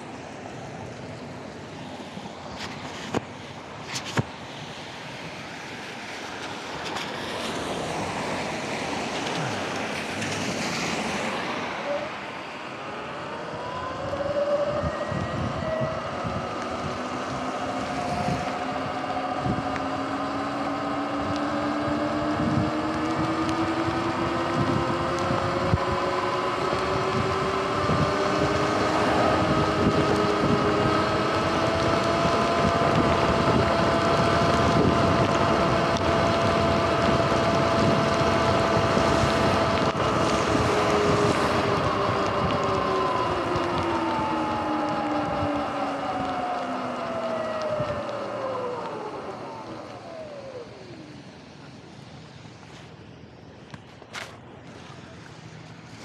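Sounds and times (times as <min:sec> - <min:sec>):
tyres hissing on wet road: 0:00.0 - 0:56.0
wind buffeting microphone: 0:01.1 - 0:53.0
electric motor whine: 0:12.8 - 0:53.8.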